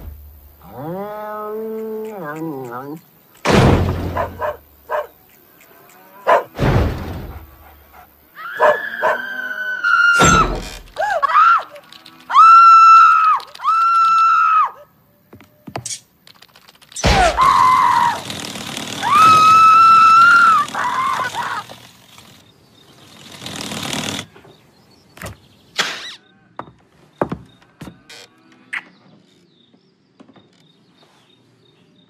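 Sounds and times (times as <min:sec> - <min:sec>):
cartoon heavy thuds: 0:03.4 - 0:04.6, 0:06.5 - 0:07.6, 0:10.2 - 0:10.9, 0:17.0 - 0:17.6
long high-pitched cries: 0:08.3 - 0:15.0, 0:19.0 - 0:21.8.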